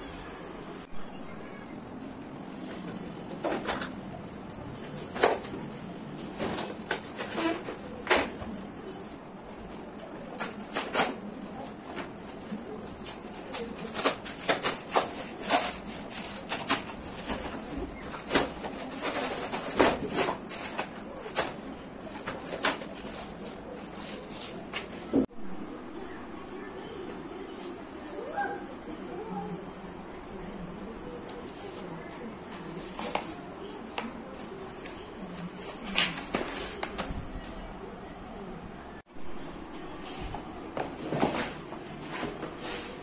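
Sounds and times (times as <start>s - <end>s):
cardboard rustling and crackling: 2.6s - 25.2s.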